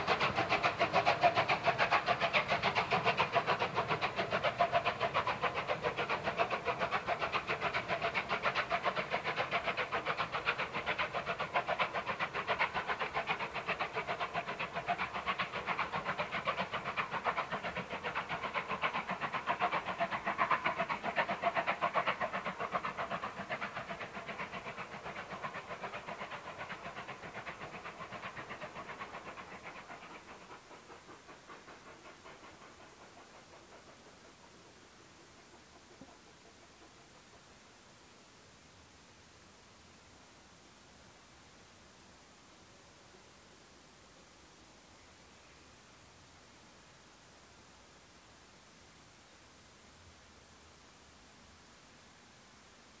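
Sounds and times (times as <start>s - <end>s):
steam locomotive exhaust beats: 0.0s - 38.8s.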